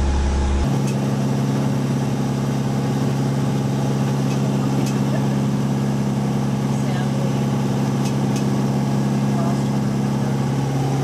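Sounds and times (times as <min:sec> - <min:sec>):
boat diesel engine droning: 0:00.0 - 0:11.0.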